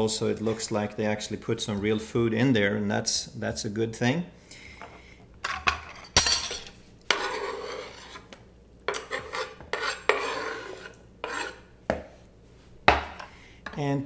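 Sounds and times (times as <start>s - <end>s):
knife scraping cutting board: 7.1s - 12.0s.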